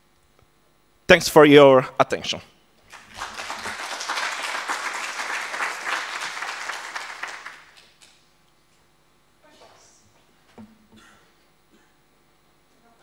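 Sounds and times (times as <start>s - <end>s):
audience applauding: 2.9s - 8.1s.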